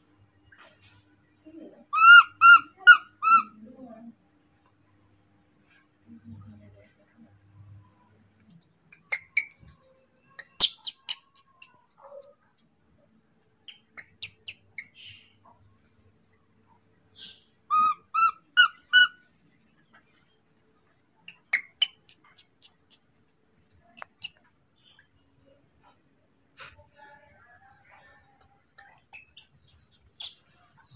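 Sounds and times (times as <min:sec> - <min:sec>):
baby monkey chirping squeaks: 0:01.8 - 0:03.6, 0:08.9 - 0:09.8, 0:10.4 - 0:12.6, 0:13.6 - 0:15.3, 0:17.2 - 0:19.3, 0:21.3 - 0:23.0, 0:23.8 - 0:24.4, 0:28.8 - 0:30.6
sharp clicks and taps: 0:21.3 - 0:24.4.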